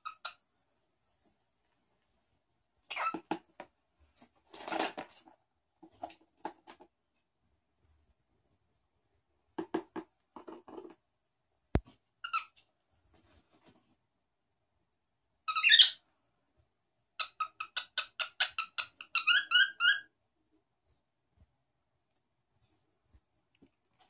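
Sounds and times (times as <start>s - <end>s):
cockatiel chattering and calling: 0.0s - 0.4s, 2.9s - 3.4s, 12.2s - 12.6s, 15.5s - 16.0s, 17.2s - 20.1s.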